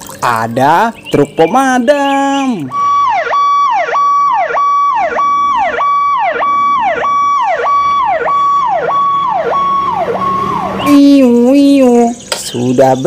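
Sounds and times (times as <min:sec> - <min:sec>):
fire engine siren: 0:02.6 - 0:11.7.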